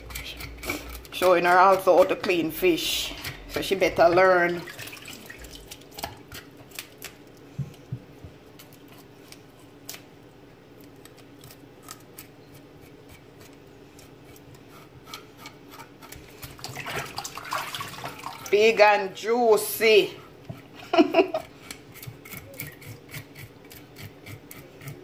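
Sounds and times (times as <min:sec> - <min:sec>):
knife scraping fish scales: 0:00.0 - 0:03.9, 0:11.1 - 0:16.7, 0:21.4 - 0:25.0.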